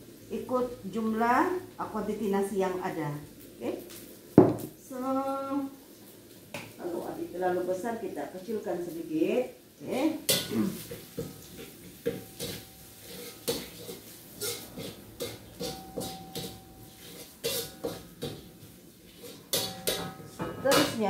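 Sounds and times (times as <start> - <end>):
food sizzling in oil: 0.0 - 21.0
metal spatula scraping a wok: 10.2 - 21.0.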